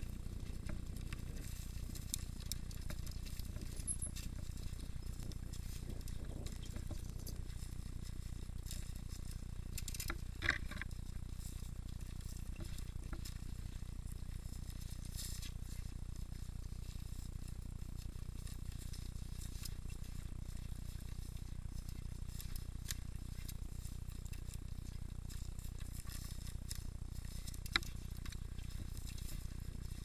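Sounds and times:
bike rattling and clicking: 0:00.0 - 0:30.0
bike rumbling over dirt trail: 0:00.0 - 0:30.0.

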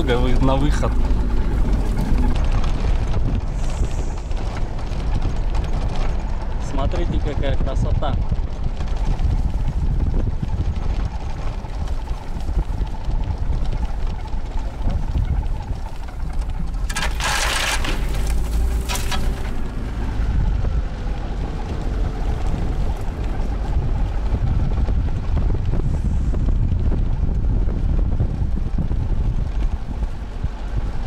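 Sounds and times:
vehicle engine and tyres rumbling: 0:00.0 - 0:31.0
wind buffeting microphone: 0:00.0 - 0:31.0
bushes scraping vehicle side: 0:16.9 - 0:19.6.

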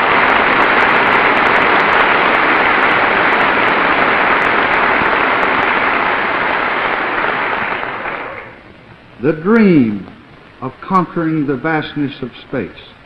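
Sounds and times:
large audience applauding: 0:00.0 - 0:08.6.

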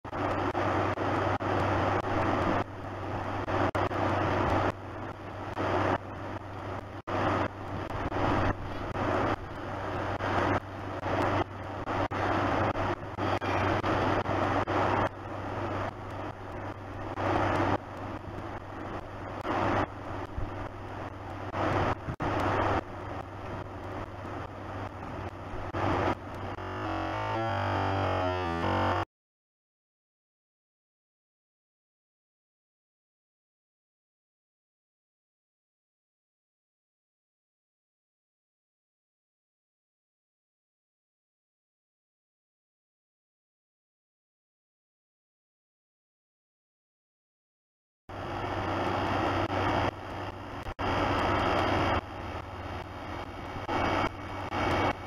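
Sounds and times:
steady rushing noise: 0:00.1 - 0:29.0, 0:48.1 - 0:55.0
constant low hum: 0:00.1 - 0:29.1, 0:48.1 - 0:55.0.

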